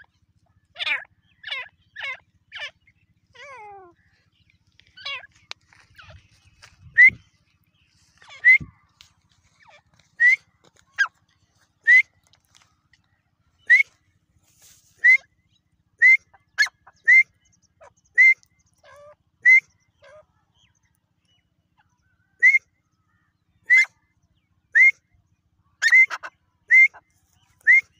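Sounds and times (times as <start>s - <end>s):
francolin whistled calls: 5.9s - 7.4s, 8.2s - 8.8s, 11.8s - 12.1s, 13.6s - 14.0s, 18.1s - 18.5s, 19.4s - 19.8s, 22.4s - 22.7s, 23.6s - 24.0s, 25.8s - 27.9s.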